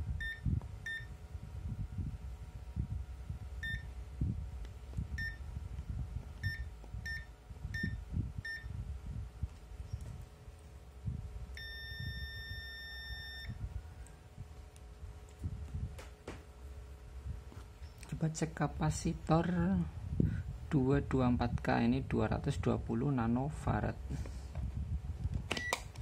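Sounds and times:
multimeter short beeps: 0.2s - 1.1s, 3.6s - 3.9s, 5.2s - 5.4s, 6.4s - 8.7s, 11.6s - 13.6s
steady continuity beep: 0.2s - 1.2s, 3.6s - 3.9s, 5.2s - 5.5s, 6.4s - 8.8s, 11.5s - 13.6s.

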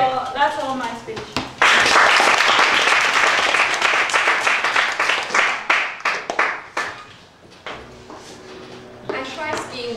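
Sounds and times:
audience applauding: 1.6s - 7.0s.

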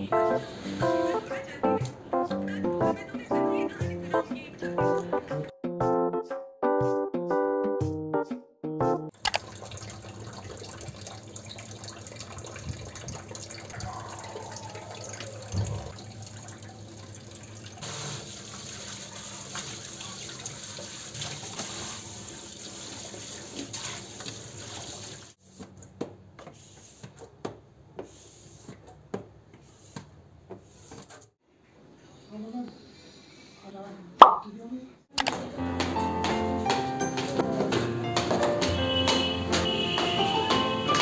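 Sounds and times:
knock in sink: 34.2s - 34.4s.

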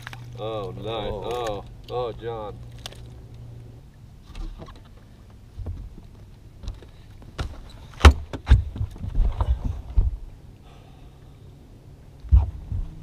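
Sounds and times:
knocks and thumps on boat deck: 4.3s - 10.3s.

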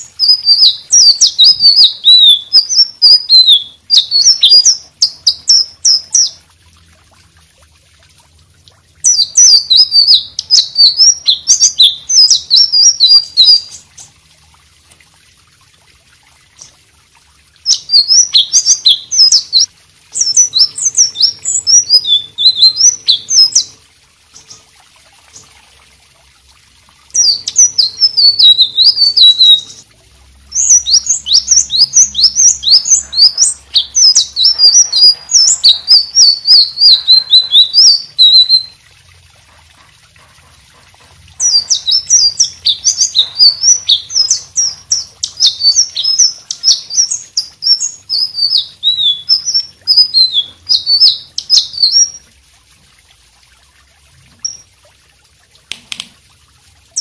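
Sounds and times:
bird singing rapid high notes: 0.0s - 6.4s, 9.0s - 14.1s, 17.6s - 23.7s, 27.2s - 29.8s, 30.5s - 38.8s, 41.4s - 52.2s.

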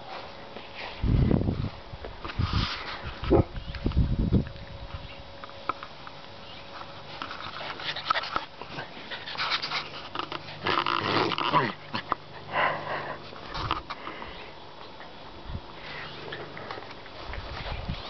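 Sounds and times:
puppy play noises: 6.6s - 14.1s.

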